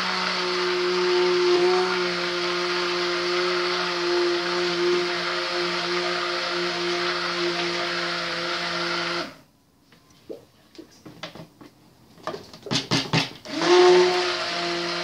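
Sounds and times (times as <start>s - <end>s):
stick blender running: 0.0s - 9.4s, 13.1s - 15.0s.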